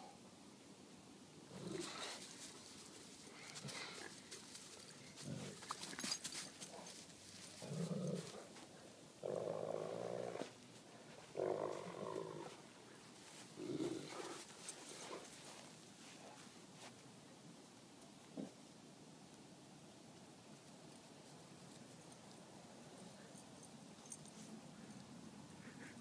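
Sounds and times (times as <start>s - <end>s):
light clicks and scuffles: 1.9s - 8.9s, 12.4s - 17.1s
dogs play-growling: 5.1s - 6.8s, 7.6s - 8.6s, 9.2s - 10.6s, 11.2s - 12.6s, 13.4s - 15.3s.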